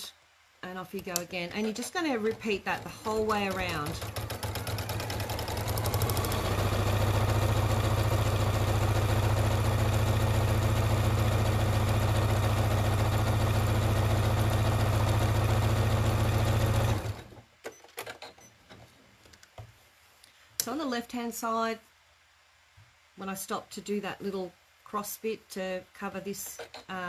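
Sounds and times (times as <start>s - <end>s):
sewing machine stitching: 1.0s - 18.5s, 26.4s - 27.0s.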